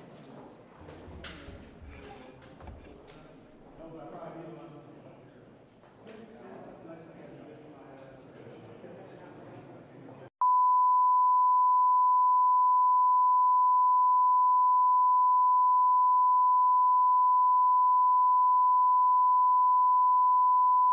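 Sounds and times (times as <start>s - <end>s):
steady test tone beep: 10.4s - 20.9s.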